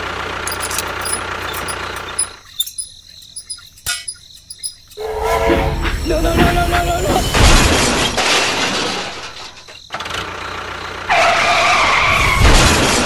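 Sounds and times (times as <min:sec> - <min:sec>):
toy tractor engine running: 0:00.0 - 0:05.0
mechanical sound with steady tone: 0:00.4 - 0:05.0.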